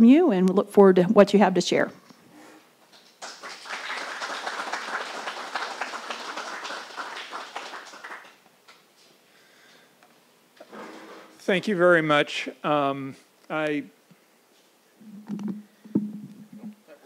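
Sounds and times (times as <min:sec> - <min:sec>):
audience applauding: 0:02.9 - 0:08.4.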